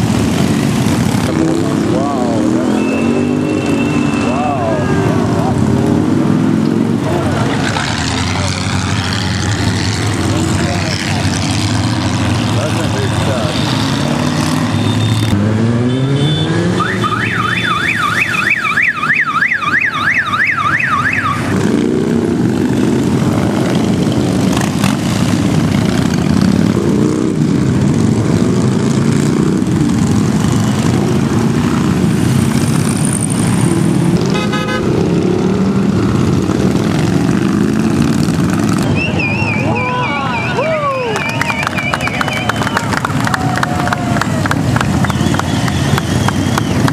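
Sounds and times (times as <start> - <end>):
motorcycles revving past: 0.0 - 18.4, 20.9 - 46.9
warbling electronic siren tone: 16.8 - 21.5.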